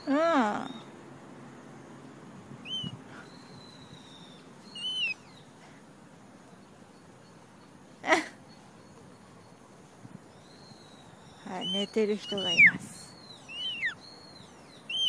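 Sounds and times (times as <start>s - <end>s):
cockatoo chirping: 2.6s - 5.6s, 10.4s - 15.0s.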